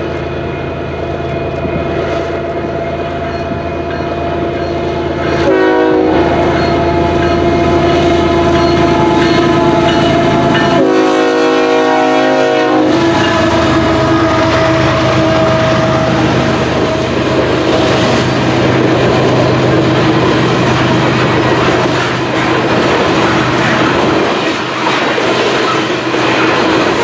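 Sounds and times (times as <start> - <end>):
diesel locomotive engine drone: 0.0 - 27.0
train horn blasts: 5.0 - 17.3.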